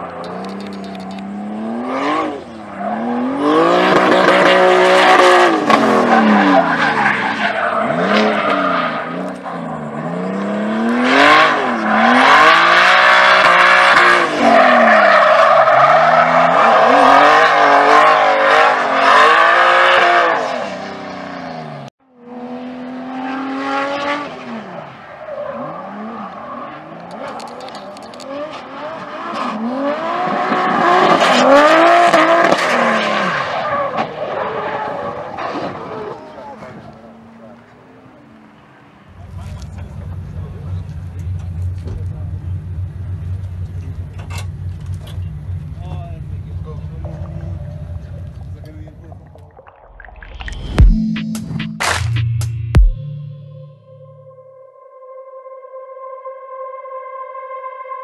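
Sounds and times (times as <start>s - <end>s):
tyres squealing and skidding: 0.0s - 21.8s, 23.4s - 41.8s
drift car engine revving: 0.0s - 49.6s.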